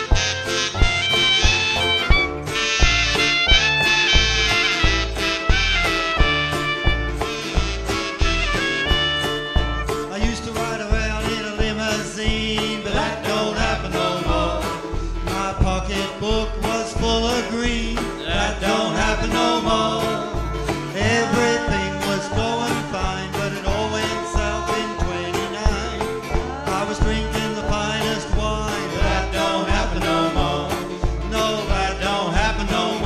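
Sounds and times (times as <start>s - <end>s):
acoustic guitar strumming: 0.0s - 33.0s
banjo: 0.0s - 33.0s
upright bass beat: 0.0s - 33.0s
person singing: 10.1s - 33.0s.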